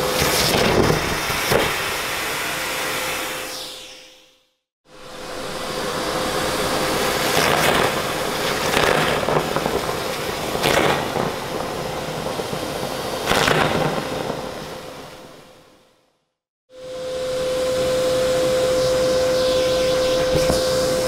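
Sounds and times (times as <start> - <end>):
vacuum cleaner humming: 0.0 - 4.2, 4.9 - 8.6, 16.7 - 21.0.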